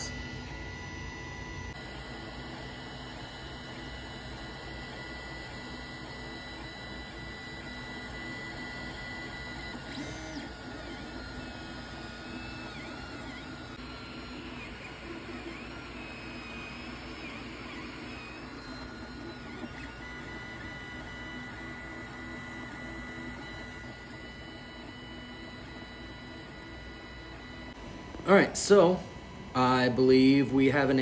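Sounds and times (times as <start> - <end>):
stepper motors whining: 0.0 - 31.0
fan humming: 27.8 - 31.0.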